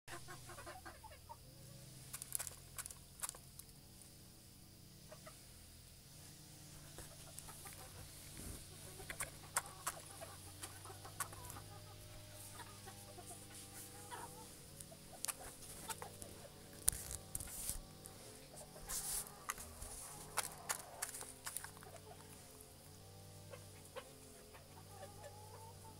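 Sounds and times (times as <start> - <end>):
low steady hum: 0.1 - 25.9
rooster clucking softly: 7.0 - 16.6.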